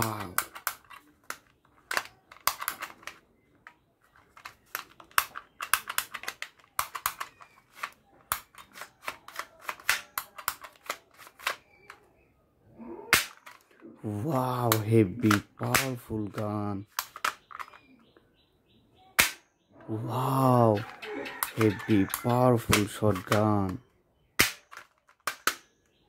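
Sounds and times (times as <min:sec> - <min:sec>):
toy revolver clicking: 0:04.7 - 0:12.0, 0:14.7 - 0:17.9, 0:21.1 - 0:23.8.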